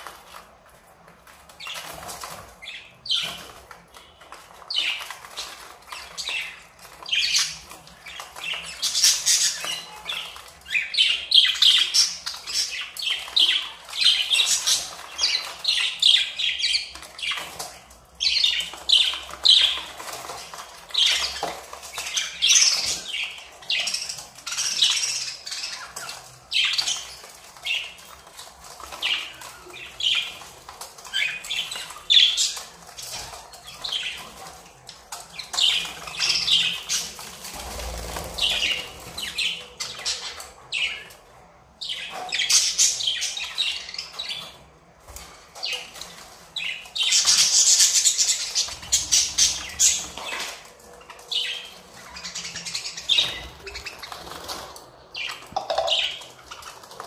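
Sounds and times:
wings fluttering: 0:35.7 - 0:39.4.

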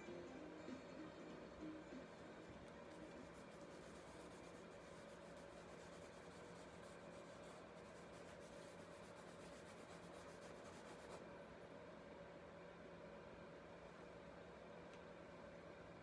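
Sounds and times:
charcoal scratching on paper: 0:02.8 - 0:11.2.

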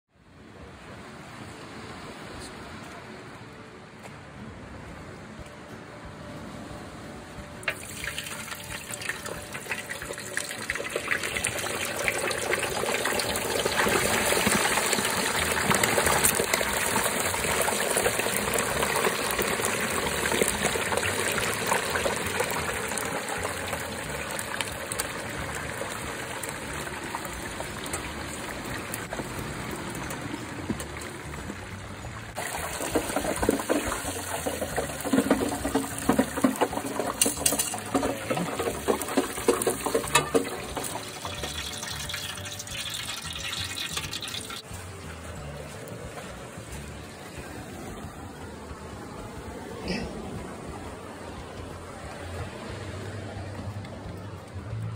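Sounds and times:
hot oil bubbling and sizzling: 0:07.6 - 0:45.7.

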